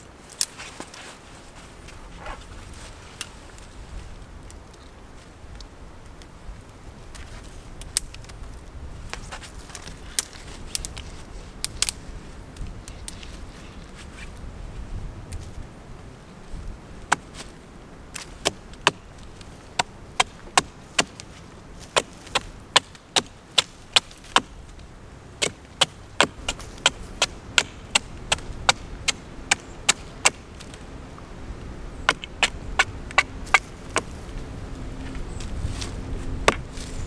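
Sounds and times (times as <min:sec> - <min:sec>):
hatchet chopping wood: 0:17.1 - 0:17.4, 0:18.4 - 0:19.0, 0:19.8 - 0:21.2, 0:21.9 - 0:24.6, 0:25.4 - 0:30.4, 0:32.1 - 0:34.1, 0:36.4 - 0:36.7.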